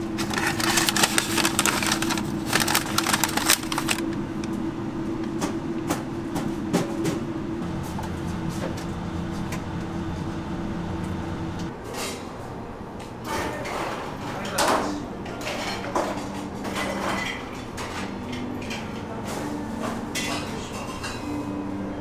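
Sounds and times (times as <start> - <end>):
steady low hum: 0.0 - 11.8
dishes and utensils clattering: 13.2 - 21.6.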